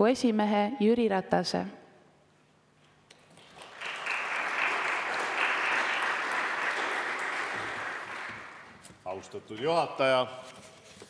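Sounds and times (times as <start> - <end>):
audience applauding: 3.2 - 8.8.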